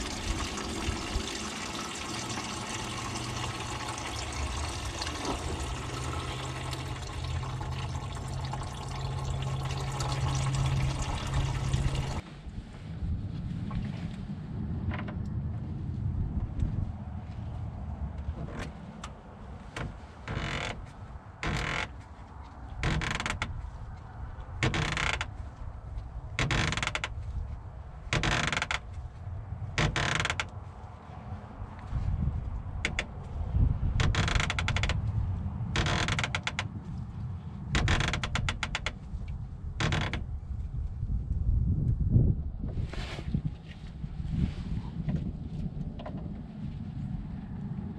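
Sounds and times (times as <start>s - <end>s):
wind rumble on microphone: 0.0s - 47.9s
plastic petcock creaking turns: 34.0s - 35.0s, 35.8s - 36.7s, 37.8s - 39.0s.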